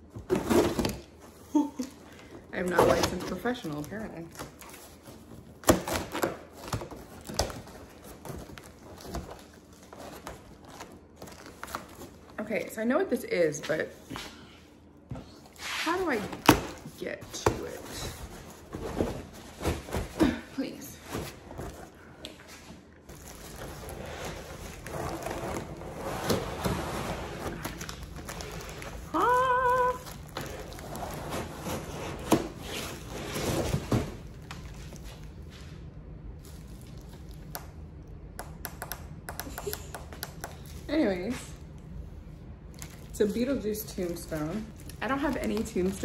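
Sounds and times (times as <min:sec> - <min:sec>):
plastic wrapping crinkling: 0:03.0 - 0:12.5, 0:23.1 - 0:35.4, 0:42.6 - 0:46.0
cardboard scraping and rustling: 0:23.1 - 0:29.1, 0:30.3 - 0:35.0.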